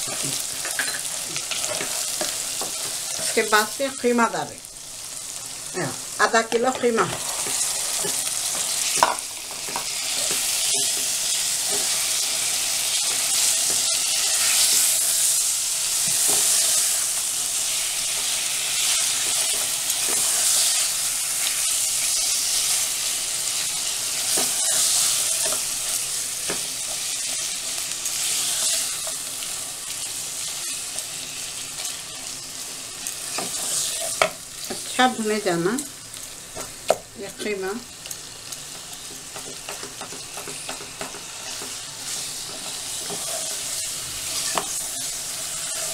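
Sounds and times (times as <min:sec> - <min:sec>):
meat sizzling in hot oil: 0:00.0 - 0:45.9
wooden spatula scraping pan: 0:40.4 - 0:45.9.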